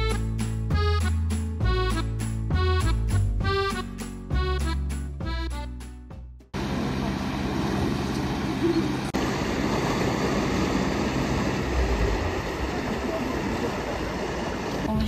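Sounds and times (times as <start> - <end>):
outdoor rumble: 6.6 - 15.0.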